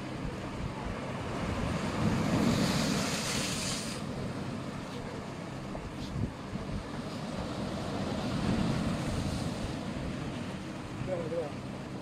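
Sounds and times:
low rumble of sea: 0.0s - 12.0s
rushing hiss: 2.6s - 4.1s.

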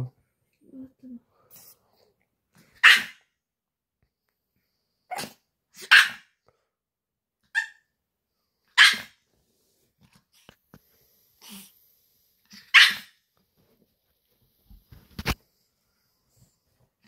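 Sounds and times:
dog barking sharply: 2.8s - 3.2s, 5.1s - 6.3s, 8.8s - 9.2s, 12.6s - 13.1s.

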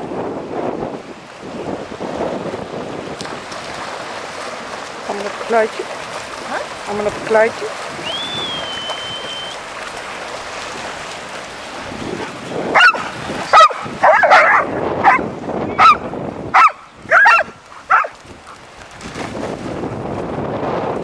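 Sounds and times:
wind on microphone: 0.0s - 21.0s
dog barking: 12.7s - 15.2s, 15.8s - 18.2s.

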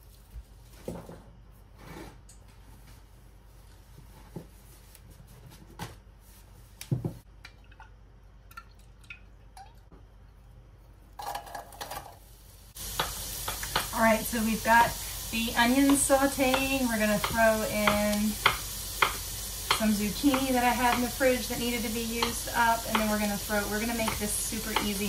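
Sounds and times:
onions pattering into pot: 11.2s - 25.0s.

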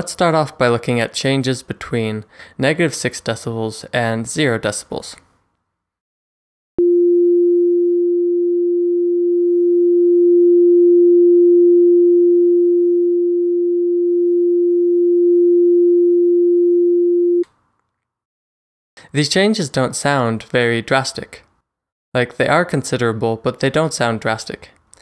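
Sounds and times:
sine test tone: 6.8s - 17.4s.

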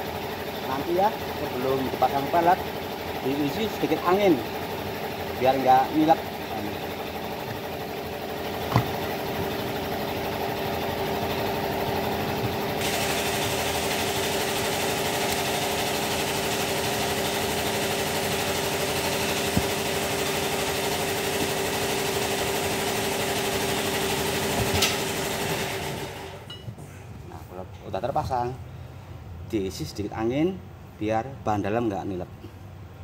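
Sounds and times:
motor humming: 5.2s - 26.4s.

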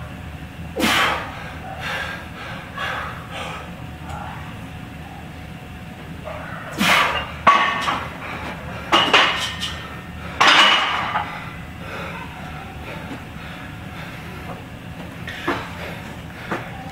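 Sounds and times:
person breathing hard: 0.8s - 4.5s, 6.4s - 16.9s
barbell plates clanking: 6.3s - 11.4s.

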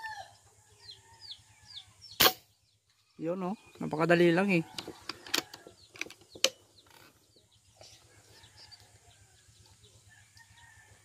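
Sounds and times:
air rifle shots: 2.2s - 2.5s.

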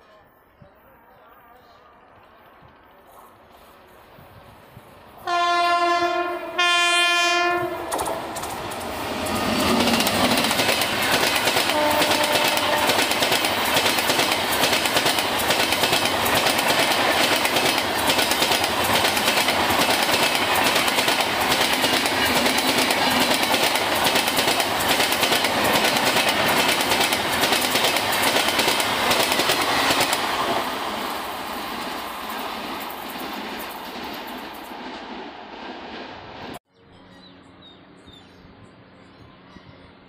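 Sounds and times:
train horn note: 5.2s - 8.4s, 11.6s - 13.2s
train wheels clattering over rails: 7.8s - 35.2s.

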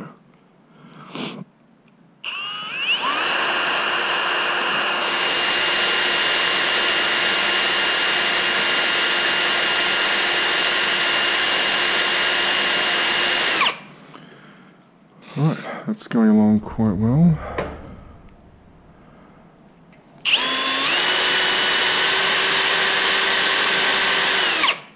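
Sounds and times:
cordless drill motor whine: 2.2s - 13.9s, 20.2s - 24.9s.

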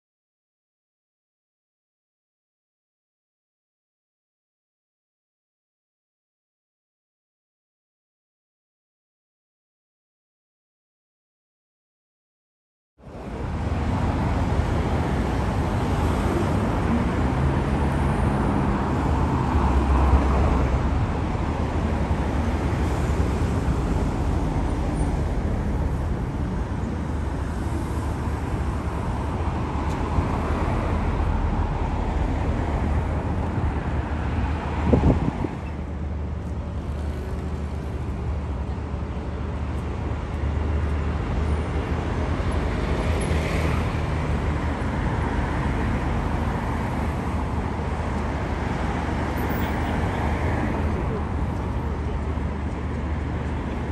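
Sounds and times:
city road traffic roar: 13.0s - 53.9s.

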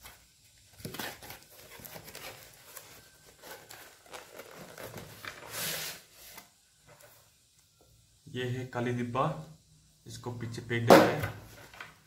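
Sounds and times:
cardboard rustling and scraping: 0.0s - 7.3s.

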